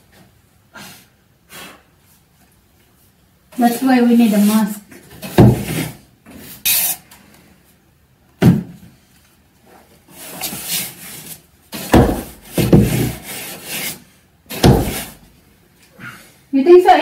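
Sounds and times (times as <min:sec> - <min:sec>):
pole scraping wooden beams: 0:10.1 - 0:15.2.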